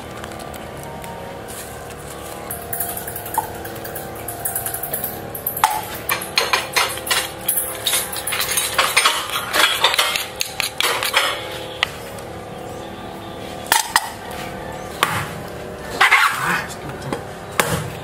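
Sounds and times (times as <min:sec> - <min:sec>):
utensils clinking against dishes: 0:02.1 - 0:12.0.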